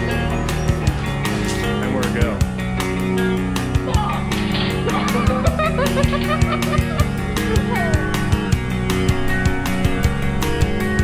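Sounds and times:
rock music with drums: 0.0s - 11.0s
person laughing: 4.8s - 8.1s.

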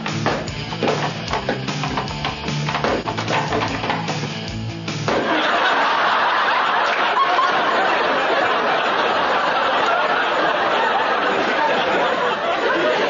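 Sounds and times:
drum-backed music: 0.0s - 5.4s
audience laughing: 5.1s - 13.0s.

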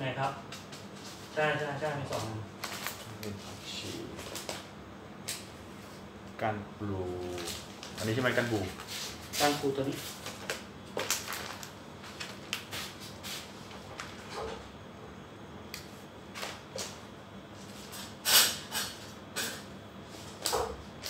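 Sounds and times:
plastic packets crinkling: 2.6s - 3.2s, 10.2s - 12.7s.

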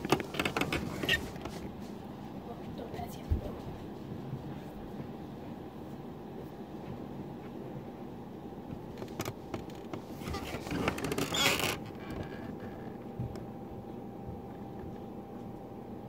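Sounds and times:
person rustling and shuffling: 0.0s - 7.7s
steady background hum: 0.0s - 16.0s.

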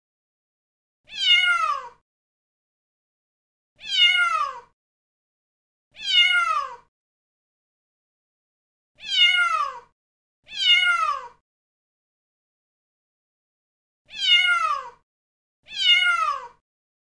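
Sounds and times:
cat meowing: 1.1s - 2.0s, 3.8s - 4.8s, 6.0s - 6.9s, 9.0s - 9.9s, 10.5s - 11.4s, 14.1s - 15.0s, 15.7s - 16.6s.

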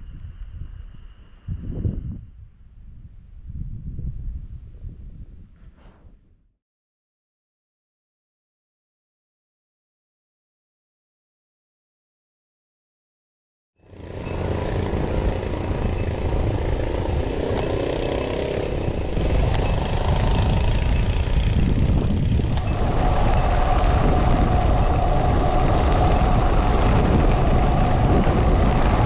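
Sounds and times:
wind buffeting microphone: 0.0s - 6.4s, 14.0s - 29.0s
road rumble: 13.8s - 29.0s
steady hum: 14.6s - 29.0s.

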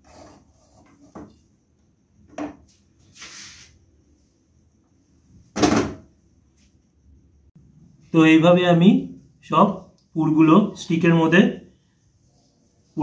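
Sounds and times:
loud thump: 5.6s - 6.0s.

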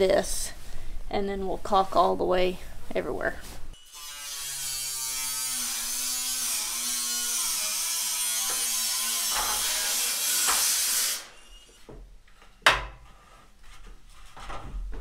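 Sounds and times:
electric tool buzzing whine: 3.8s - 11.9s.

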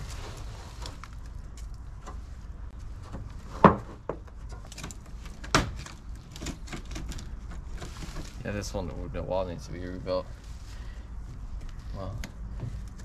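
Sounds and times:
loose wood crackling: 0.0s - 13.0s.

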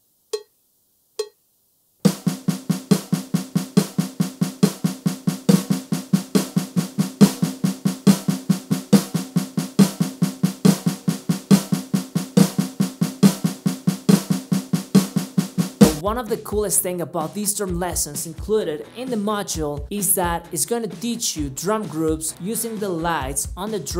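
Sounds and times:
fast stick strokes on snare pad: 2.0s - 16.6s, 20.0s - 23.9s.

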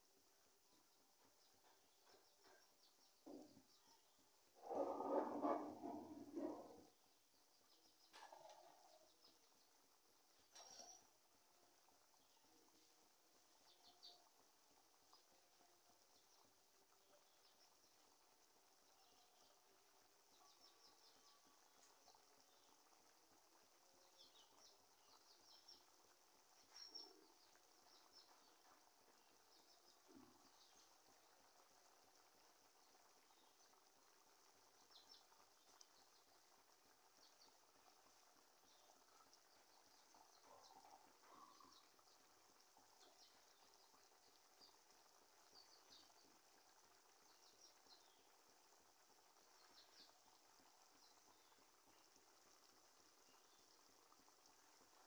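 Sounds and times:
curry bubbling: 1.4s - 55.0s
faint high chirps: 10.4s - 14.4s, 18.9s - 22.8s, 26.6s - 31.3s, 38.6s - 42.2s.

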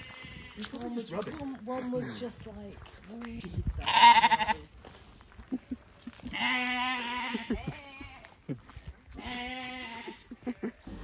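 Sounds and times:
sheep bleating: 3.8s - 4.7s, 6.2s - 8.4s, 9.1s - 11.0s.

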